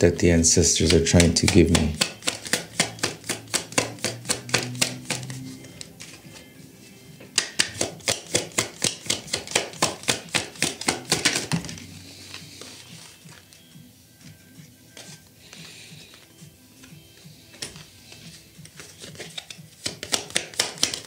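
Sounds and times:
cards being shuffled: 0.5s - 6.5s, 7.2s - 21.0s.

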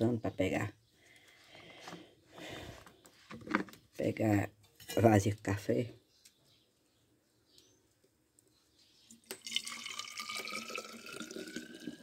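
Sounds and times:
coffee pouring into a flask: 9.2s - 12.0s.

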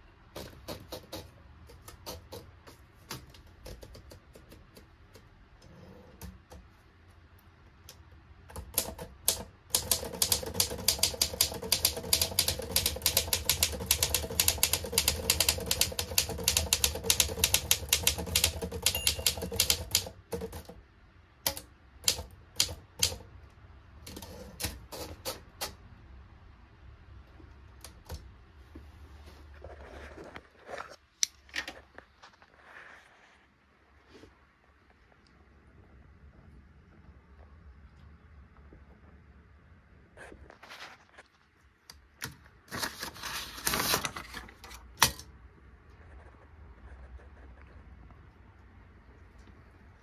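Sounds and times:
typewriter typing: 8.5s - 20.8s, 21.5s - 23.3s, 24.0s - 25.8s.

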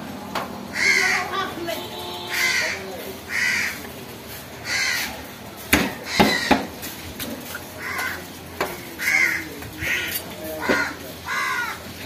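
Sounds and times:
crows cawing: 0.7s - 1.4s, 2.3s - 3.8s, 4.6s - 5.2s, 5.9s - 6.7s, 7.8s - 12.0s.

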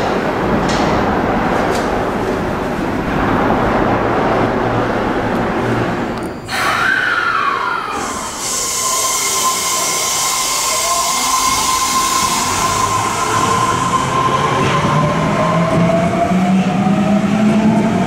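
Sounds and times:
train rushing run noise: 0.0s - 6.2s, 7.3s - 18.0s
train inverter whine: 0.0s - 18.0s.

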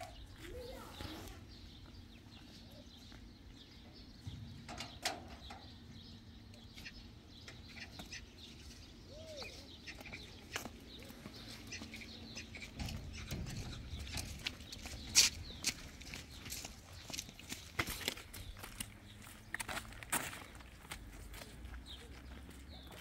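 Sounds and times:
small knocks and rustles: 10.5s - 18.9s.

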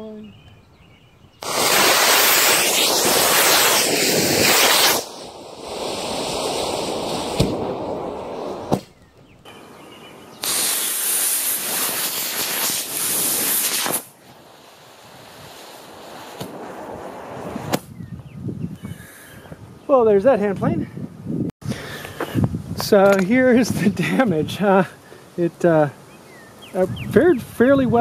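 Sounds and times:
rocket motor hissing: 1.4s - 8.9s, 10.4s - 18.0s
sharp pops: 1.4s - 9.6s, 10.4s - 18.0s.

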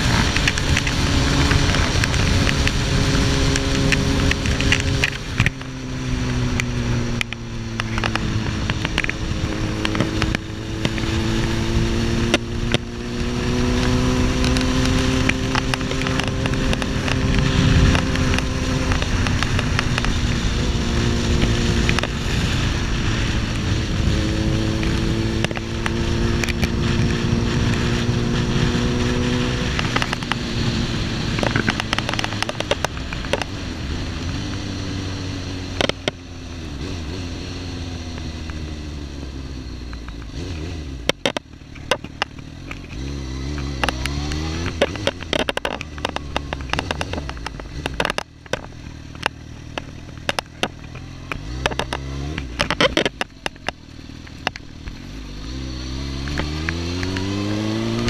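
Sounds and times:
motorcycle engine running: 0.0s - 58.0s
wind buffeting on microphone: 7.8s - 33.8s.

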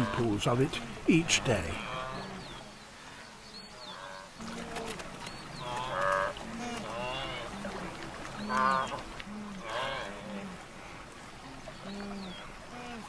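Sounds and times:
wildebeest grunting honks: 0.0s - 2.7s, 8.4s - 10.6s.

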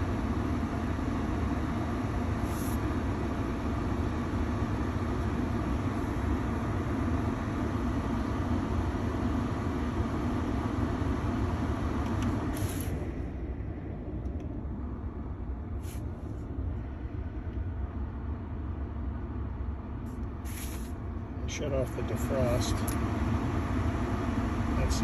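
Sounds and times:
air blower rushing: 2.3s - 3.1s, 10.6s - 14.2s, 15.6s - 17.3s, 20.1s - 21.0s.

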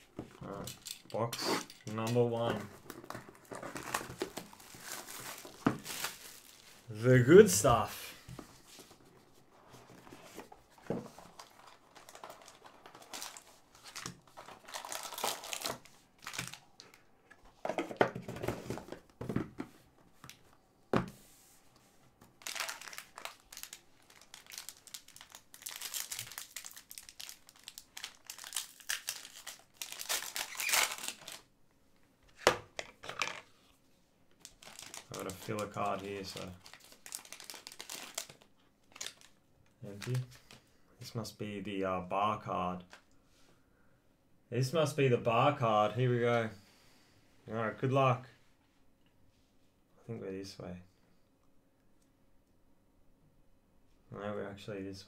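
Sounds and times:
packaging being torn and crinkled: 3.1s - 6.9s, 11.4s - 17.0s, 22.4s - 31.5s, 34.4s - 40.2s.

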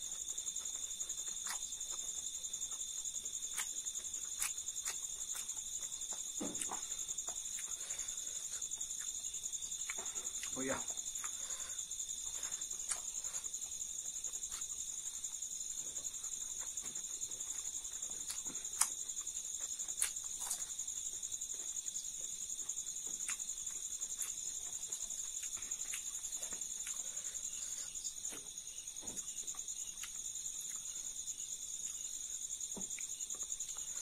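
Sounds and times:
chewing and crunching: 0.0s - 34.0s
crickets chirping: 0.0s - 34.0s.

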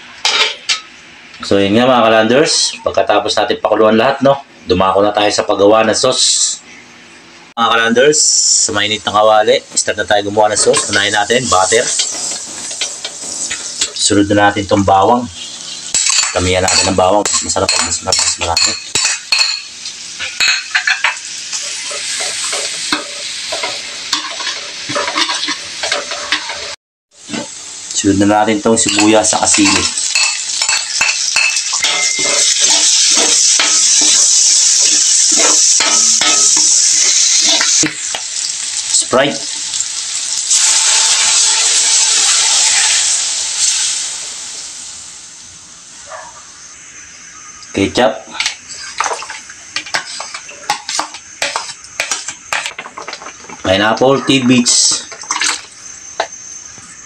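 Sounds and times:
garlic sizzling in butter: 8.3s - 57.0s
metal utensil scraping wok: 20.2s - 27.5s, 28.8s - 37.9s, 48.4s - 53.6s.

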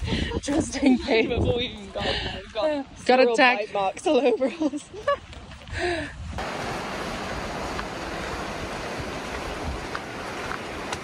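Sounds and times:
river rushing: 6.4s - 11.0s.

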